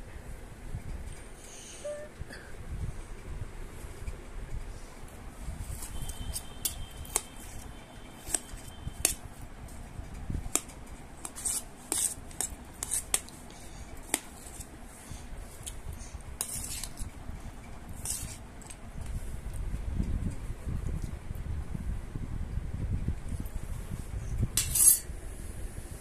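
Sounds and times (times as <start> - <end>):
spoon clinking on steel plate: 24.6 - 25.1.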